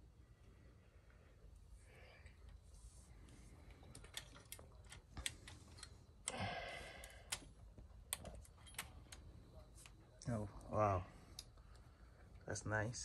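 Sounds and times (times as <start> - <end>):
metal parts clicking and rattling: 3.8 - 5.9, 8.1 - 9.2.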